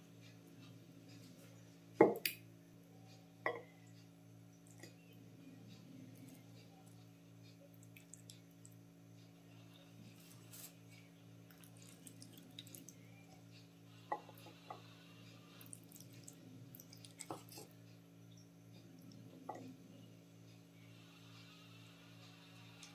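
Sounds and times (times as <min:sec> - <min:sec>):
steady low hum: 0:00.0 - 0:22.9.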